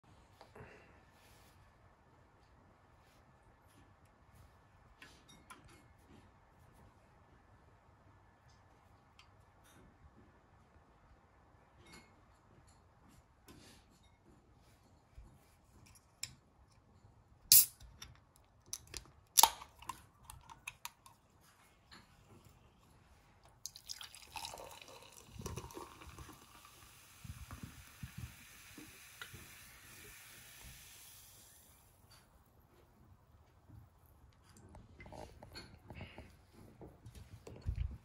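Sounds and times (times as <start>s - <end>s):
can pull tab snapping open: 18.7s - 19.9s
fizzy drink pouring into mug: 23.6s - 32.0s.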